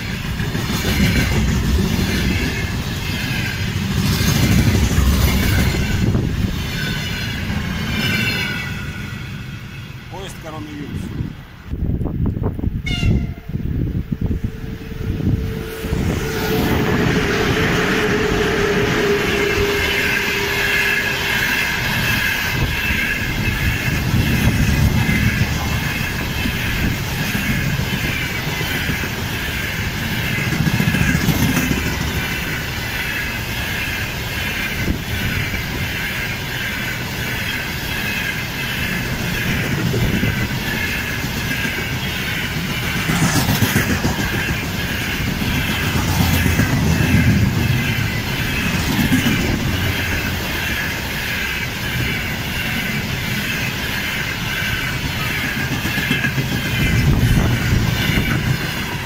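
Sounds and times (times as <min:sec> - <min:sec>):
wheels clicking over rail joints: 0:00.0 - 0:08.6, 0:21.5 - 0:59.0
locomotive tone dropping in pitch: 0:00.0 - 0:10.2, 0:12.6 - 0:59.0
train wheels rumbling on rail: 0:00.0 - 0:59.0
high wheel ringing: 0:14.2 - 0:43.2.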